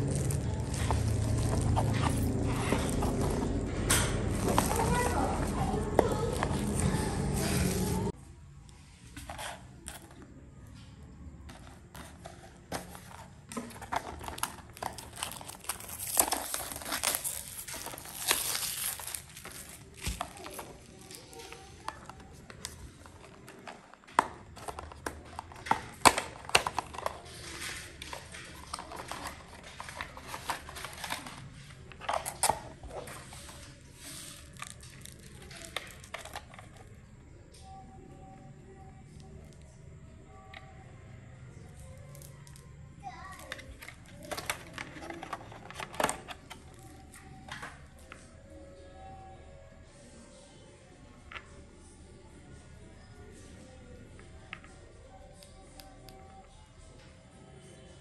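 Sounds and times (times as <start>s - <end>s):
packaging crinkling: 0.0s - 3.6s, 12.0s - 23.6s.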